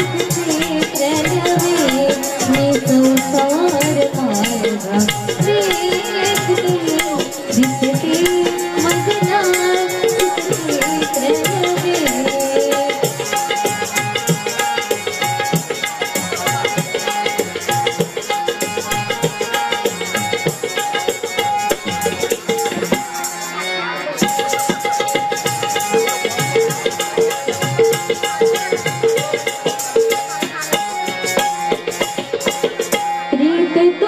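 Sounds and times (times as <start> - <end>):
drum and hand percussion: 0.0 - 34.0
harmonium: 0.0 - 34.0
girl singing: 0.3 - 13.0.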